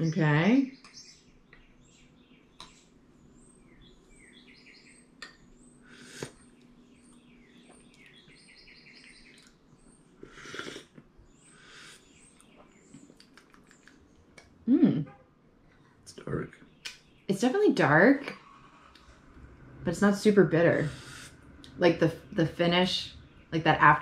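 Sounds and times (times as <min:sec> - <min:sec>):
coffee slurping from spoons: 0:10.2 - 0:11.0.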